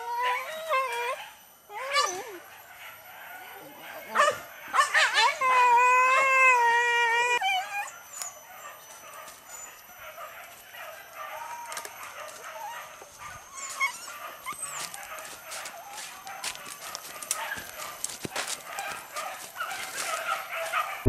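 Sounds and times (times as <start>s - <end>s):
dog howling: 0.0s - 21.0s
rustling and twig snaps: 16.5s - 20.2s.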